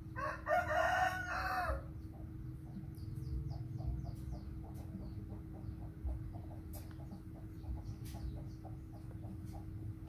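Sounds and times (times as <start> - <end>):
chickens clucking: 0.0 - 10.0
rooster crowing: 0.1 - 1.9
chicks chirping: 0.2 - 10.0.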